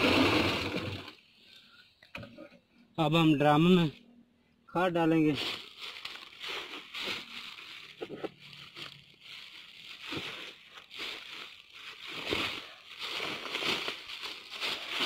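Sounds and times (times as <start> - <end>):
sack and granules rustling: 5.1 - 15.0.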